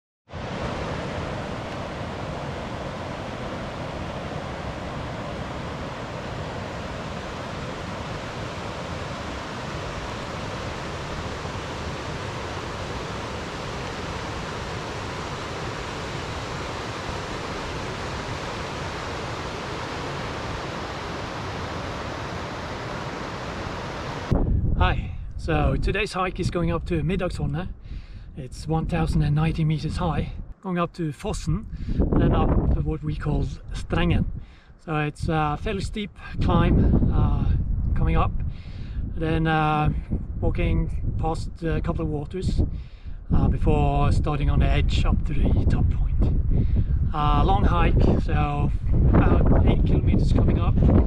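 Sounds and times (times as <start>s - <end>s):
river rushing over stones: 0.3s - 24.3s.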